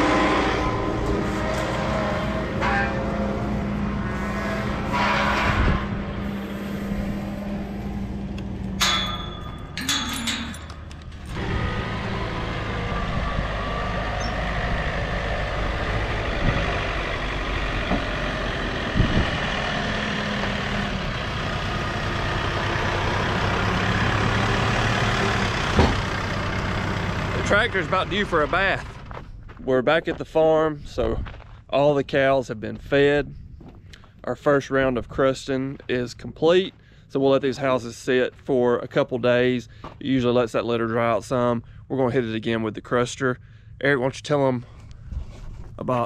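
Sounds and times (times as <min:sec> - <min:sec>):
diesel tractor engine running: 0:00.0 - 0:31.4
rattling: 0:08.6 - 0:11.7.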